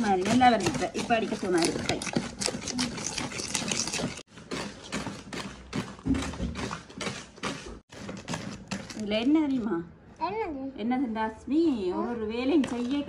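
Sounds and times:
wooden spoon beating batter in bowl: 0:00.0 - 0:09.5.

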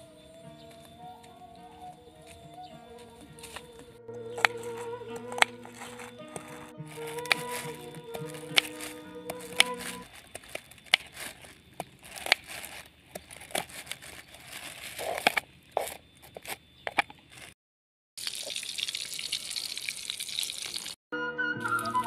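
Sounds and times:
tofu sizzling in oil: 0:18.2 - 0:21.0.

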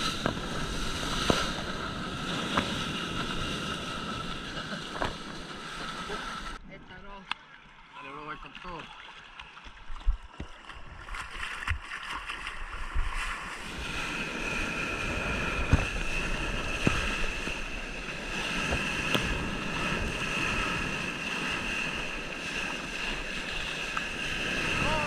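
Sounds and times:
water sloshing and splashing: 0:07.2 - 0:25.0
whitewater rushing: 0:13.7 - 0:25.0.

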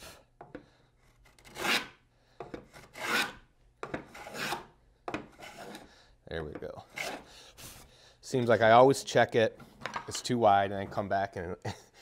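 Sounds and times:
hand plane strokes on wood: 0:01.3 - 0:05.9, 0:06.9 - 0:07.3.

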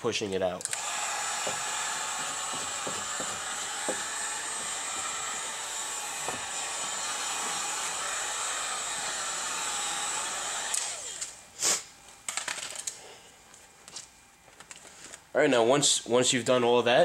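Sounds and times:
heat gun whine winding down: 0:00.7 - 0:11.4
heat gun blowing: 0:00.7 - 0:11.9.

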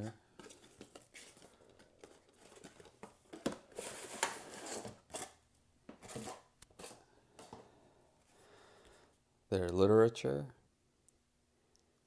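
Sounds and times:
cardboard and paper rustling: 0:00.4 - 0:07.6.

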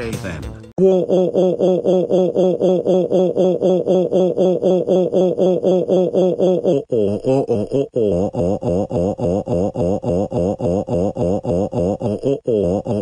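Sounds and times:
synthetic voice repeating syllable: 0:00.0 - 0:13.0.

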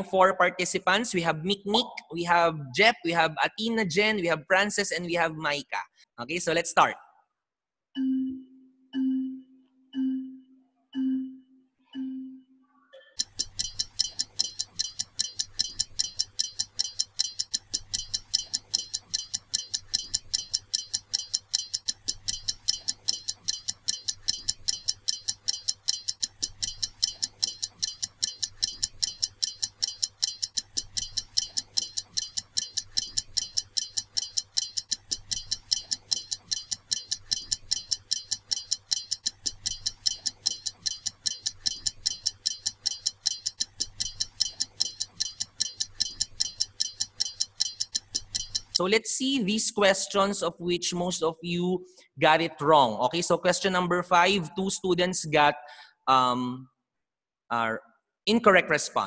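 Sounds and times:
fast clock-like ticking: 0:00.6 - 0:05.2, 0:13.1 - 0:48.8
short low beeps: 0:08.0 - 0:12.5.

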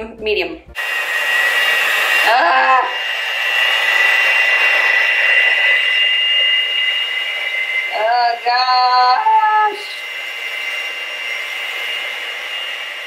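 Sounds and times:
electric mixer whining: 0:00.7 - 0:13.0.

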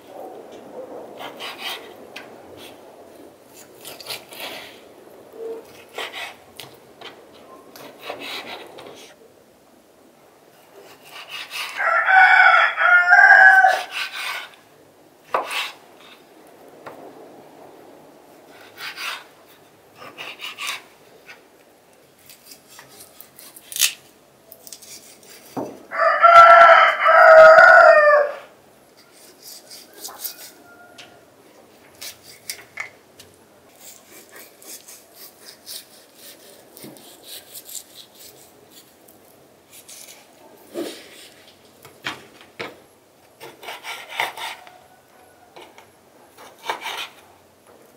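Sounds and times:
rooster crowing: 0:11.7 - 0:14.0, 0:25.9 - 0:28.6, 0:29.8 - 0:31.3, 0:44.4 - 0:45.9.

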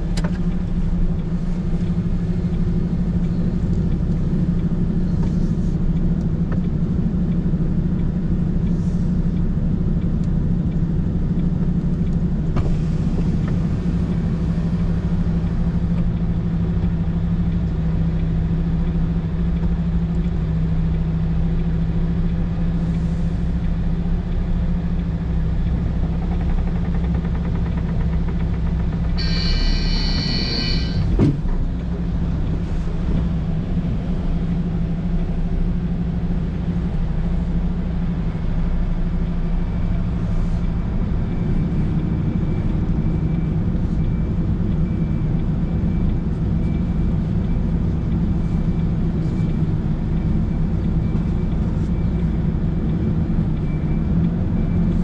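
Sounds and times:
truck engine droning: 0:00.0 - 0:55.0
high-pitched multi-tone signal: 0:29.2 - 0:31.2.

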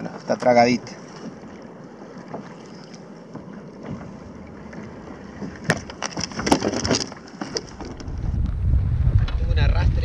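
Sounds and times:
wind hiss on microphone: 0:08.1 - 0:10.0.

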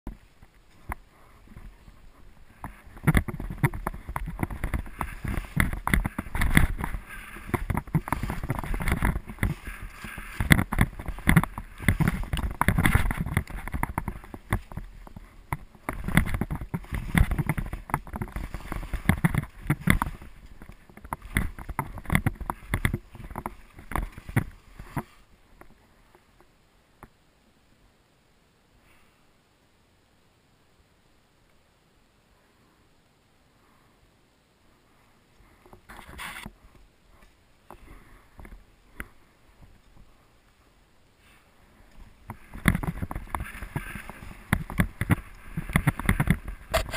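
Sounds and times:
sharp clicks and knocks: 0:02.5 - 0:25.7, 0:42.2 - 0:46.9
skis swishing through powder snow: 0:04.0 - 0:16.1, 0:41.2 - 0:46.9.

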